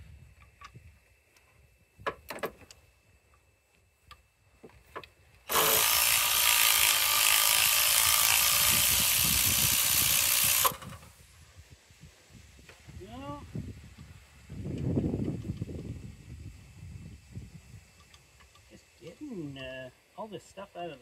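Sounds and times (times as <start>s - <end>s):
impact wrench running: 5.5s - 11.1s.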